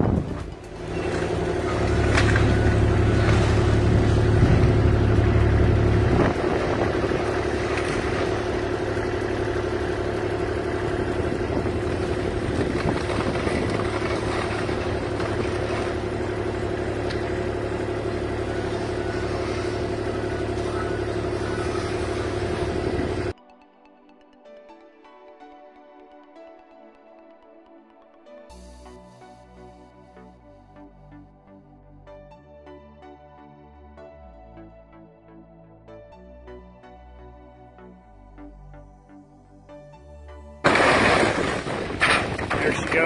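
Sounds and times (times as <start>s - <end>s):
deep rumble: 0.0s - 23.4s, 40.6s - 43.0s
excavator engine running: 0.0s - 23.4s, 40.6s - 43.0s.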